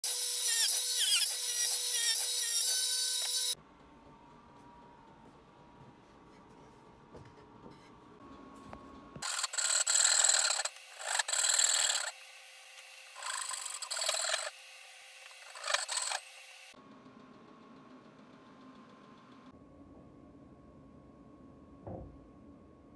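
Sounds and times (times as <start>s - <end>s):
hand tool rasping on wood: 9.2s - 12.1s, 13.2s - 14.5s, 15.4s - 16.2s.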